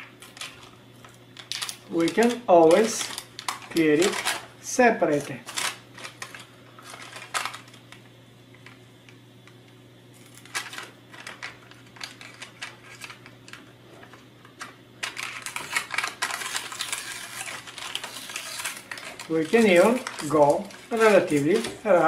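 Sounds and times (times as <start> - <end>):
paper backing peeling off plastic: 15.0 - 21.8.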